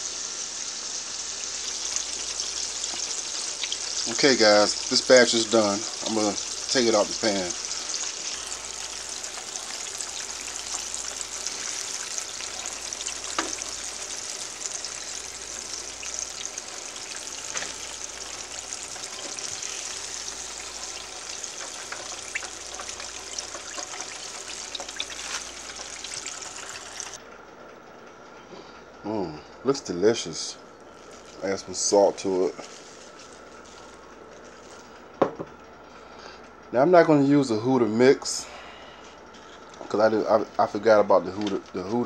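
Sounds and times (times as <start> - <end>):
chicken deep-frying in oil: 0.0 - 27.2, 30.9 - 34.6.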